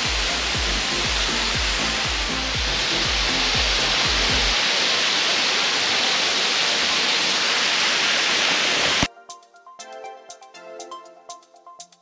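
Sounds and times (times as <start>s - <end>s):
waterfall rushing: 0.0s - 9.1s.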